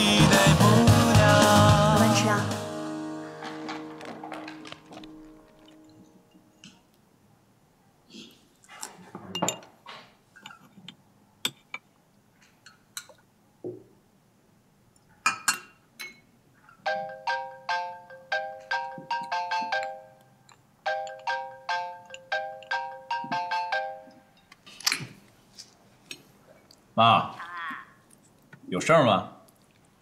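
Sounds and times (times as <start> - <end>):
spoons clinking against bowls: 15.3 - 16.3.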